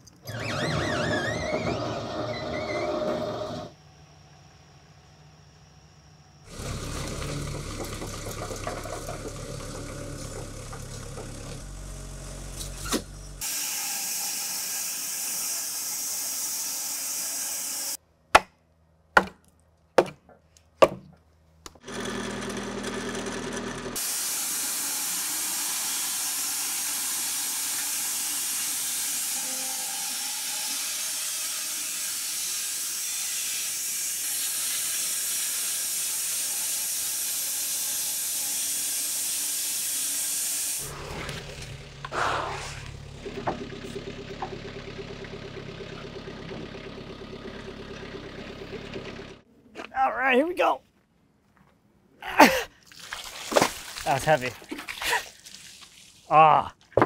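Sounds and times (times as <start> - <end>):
bandsaw cutting log: 0.3 - 3.7, 6.5 - 18.5, 21.8 - 44.6.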